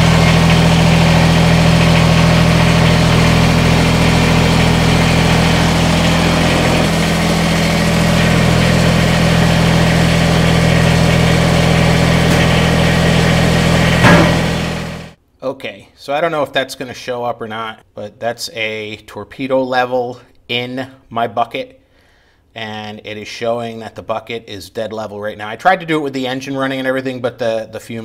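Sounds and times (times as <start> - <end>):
diesel tractor engine idling: 0.0 - 15.2
sharp knock: 12.3 - 12.7, 14.0 - 14.8.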